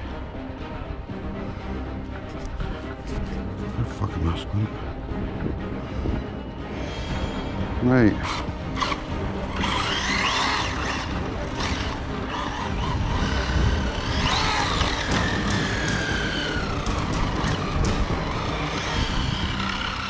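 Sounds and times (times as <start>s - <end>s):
electric motor whining: 8.2s - 20.0s
sharp clicks: 14.2s - 20.0s.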